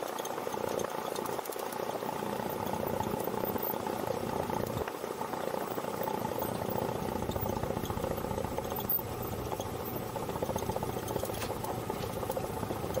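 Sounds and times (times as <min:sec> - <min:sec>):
piston aircraft engine running: 0:05.5 - 0:13.0.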